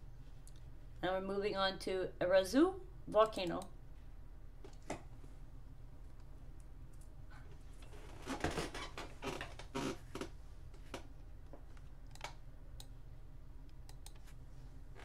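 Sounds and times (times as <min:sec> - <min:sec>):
steady low hum: 0:00.0 - 0:08.4, 0:09.0 - 0:15.0
computer mouse clicks: 0:11.8 - 0:12.9, 0:13.7 - 0:14.4.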